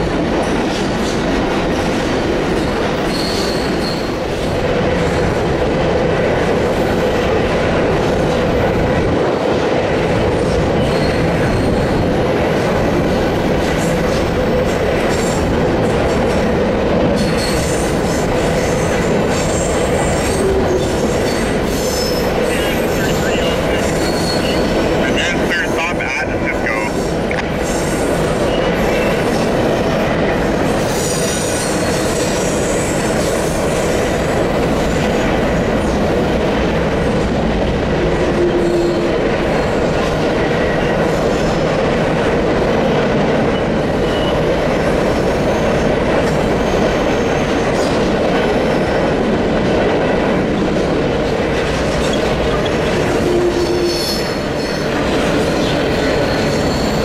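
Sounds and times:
train wheels rumbling on rails: 0.0s - 57.0s
high wheel squeal: 3.0s - 4.2s, 10.8s - 12.0s, 21.2s - 24.7s, 55.9s - 57.0s.

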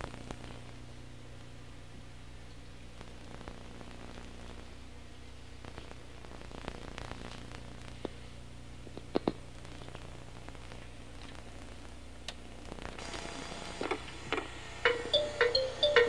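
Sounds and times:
videotape hum and hiss: 0.0s - 16.0s
bright rhythmic tune: 14.9s - 16.0s.

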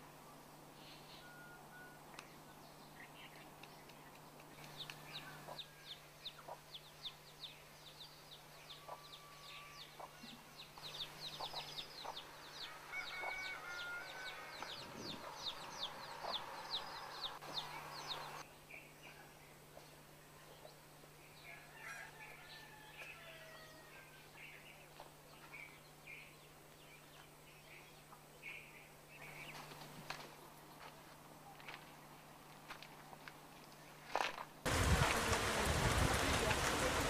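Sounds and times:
chickens peeping: 8.7s - 18.4s.

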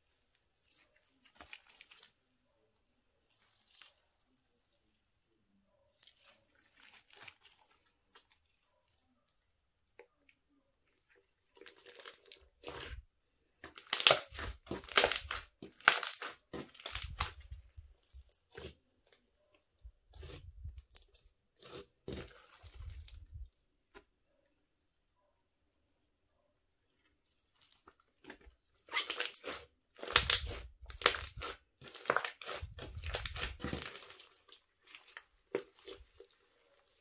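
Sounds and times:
slime crackling and popping: 13.6s - 18.8s, 27.6s - 37.0s.

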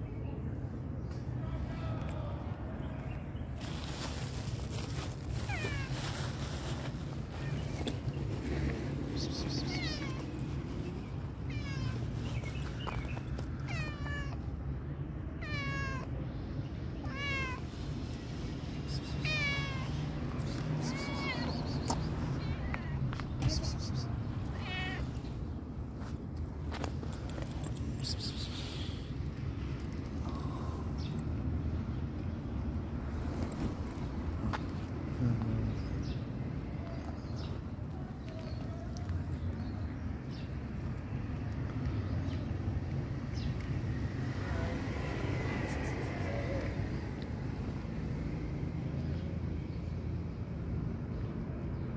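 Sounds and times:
cat meowing: 5.4s - 6.0s, 9.4s - 10.4s, 11.4s - 12.1s, 13.6s - 14.5s, 15.4s - 16.2s, 17.0s - 17.7s, 19.2s - 20.0s, 20.8s - 21.8s, 24.5s - 25.2s.

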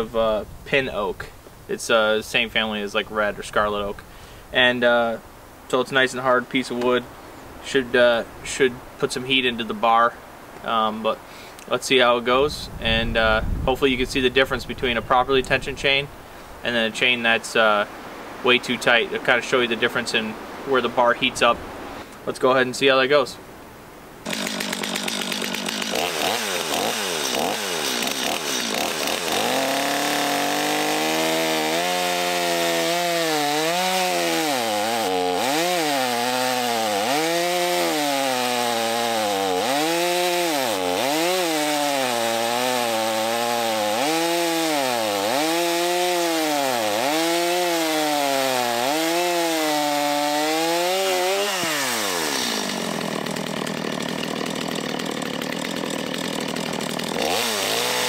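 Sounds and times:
chainsaw cutting wood: 24.2s - 58.0s.

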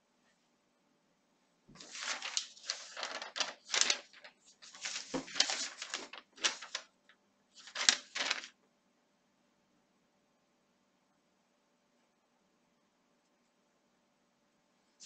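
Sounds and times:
paper rustling: 1.7s - 8.6s.

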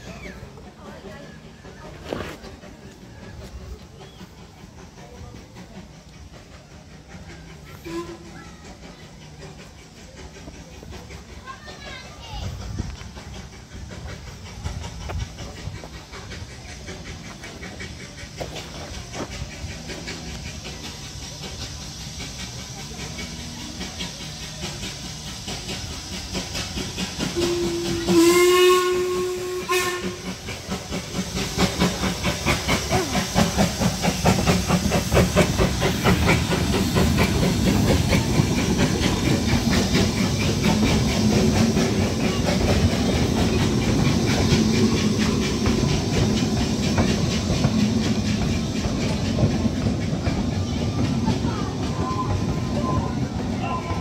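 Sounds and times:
coaches clattering over rails: 0.0s - 54.0s
steam exhaust chuffs: 0.0s - 54.0s
steam locomotive whistle: 7.7s - 8.4s, 27.3s - 30.5s.

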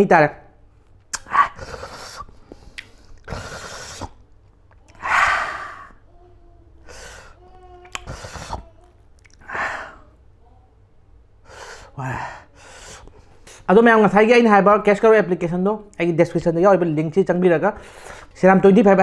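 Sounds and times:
man breathing hard: 5.0s - 6.0s, 11.5s - 13.7s.

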